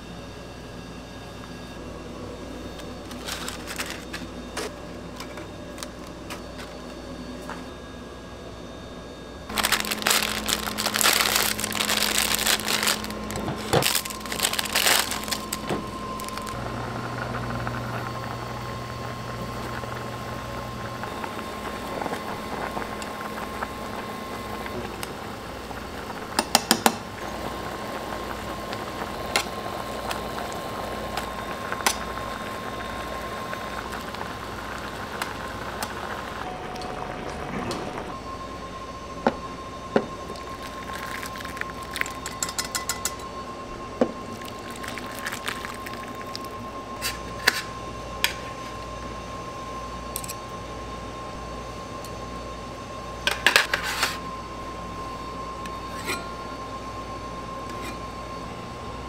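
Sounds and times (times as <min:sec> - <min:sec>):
steady low hum: 0:00.0 - 0:59.0
kitchen noise: 0:02.8 - 0:06.8, 0:09.5 - 0:16.6, 0:40.9 - 0:43.4
plastic packaging crinkling: 0:02.8 - 0:06.8, 0:09.5 - 0:16.6.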